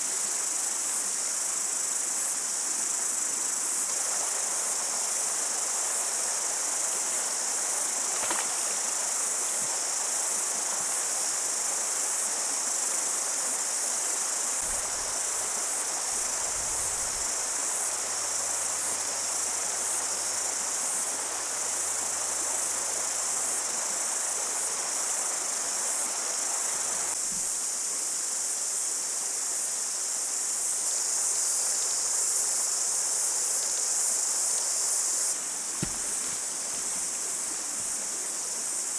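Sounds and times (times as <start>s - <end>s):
high-pitched insect chorus: 0.0s - 38.9s
rocky stream rushing: 35.4s - 38.9s.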